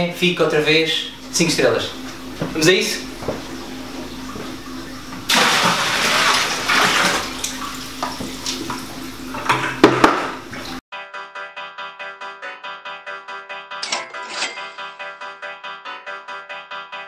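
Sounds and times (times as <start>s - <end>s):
water gushing into aquarium: 3.5s - 10.8s.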